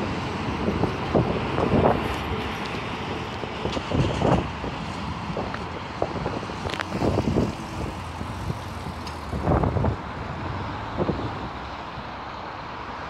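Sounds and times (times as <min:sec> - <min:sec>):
wind buffeting microphone: 0:00.0 - 0:12.1
distant train engine drone: 0:00.0 - 0:13.0.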